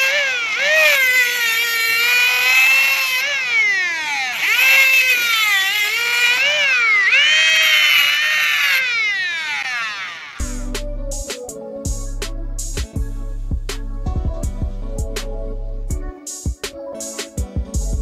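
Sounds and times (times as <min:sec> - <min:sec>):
angle grinder grinding steel: 0:00.0 - 0:10.7.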